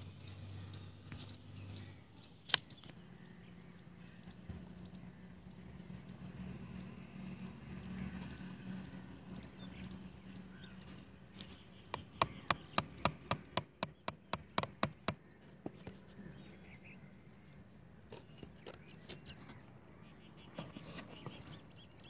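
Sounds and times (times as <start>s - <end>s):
nail tapping through plastic pipe: 12.0s - 15.2s.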